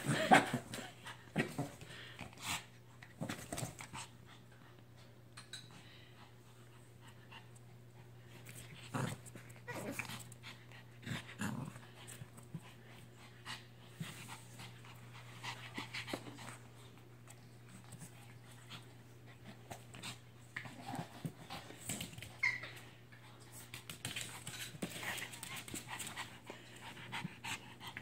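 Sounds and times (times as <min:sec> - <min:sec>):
small dogs growling: 0:08.6 - 0:12.5, 0:20.0 - 0:22.1
dogs panting: 0:23.2 - 0:28.0.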